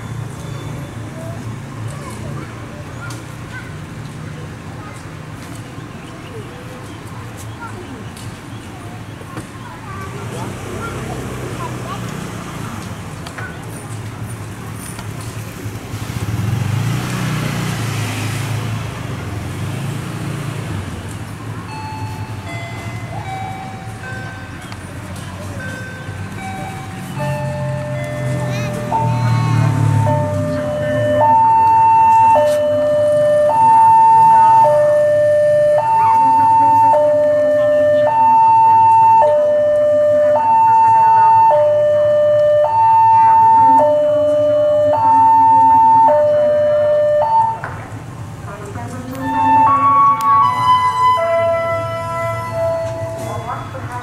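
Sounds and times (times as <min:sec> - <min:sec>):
diesel locomotive engine droning: 0:17.7 - 0:54.0
level crossing alarm two-tone: 0:21.7 - 0:24.6, 0:25.8 - 0:47.6, 0:49.2 - 0:54.0.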